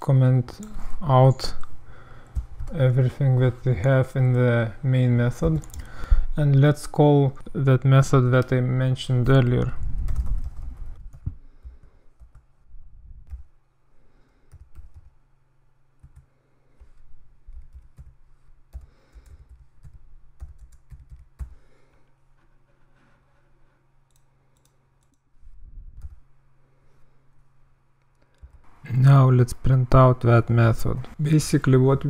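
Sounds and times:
faint low hum: 0.0s - 32.0s
keyboard typing clicks: 5.5s - 5.9s.

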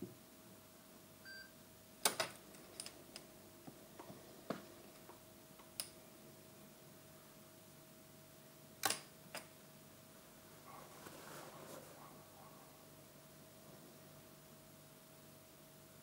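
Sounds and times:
faint steady tone: 1.2s - 1.6s
switches and connectors clicking: 5.0s - 6.0s, 8.8s - 9.5s.

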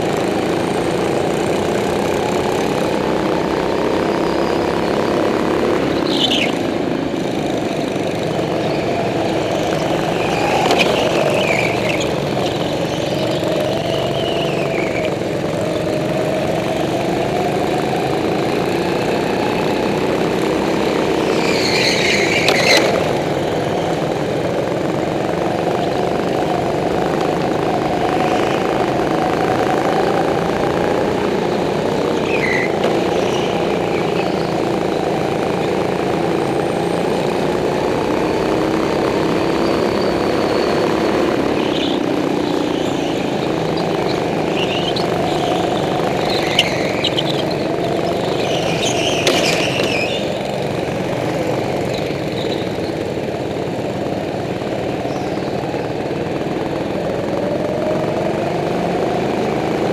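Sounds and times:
go-kart engines revving: 0.0s - 59.9s
tyre squeals: 5.9s - 17.6s, 20.2s - 24.9s, 31.2s - 35.2s, 38.0s - 53.1s.

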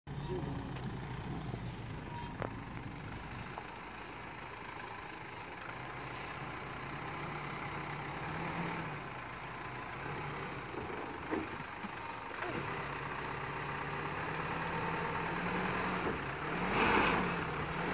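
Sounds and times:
diesel truck engine at low revs: 0.1s - 17.9s.

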